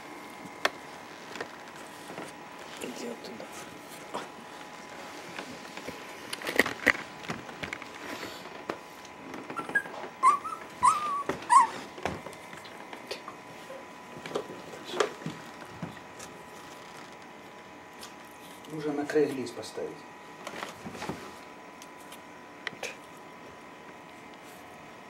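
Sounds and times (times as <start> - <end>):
puppies whining: 9.4 - 12.0.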